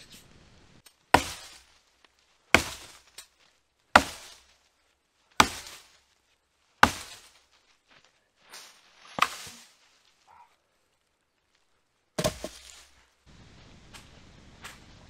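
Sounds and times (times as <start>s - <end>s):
axe chopping wood: 1.1s - 1.8s, 2.5s - 3.3s, 3.9s - 4.6s, 5.4s - 6.0s, 6.8s - 7.4s, 9.1s - 9.7s, 12.2s - 12.9s.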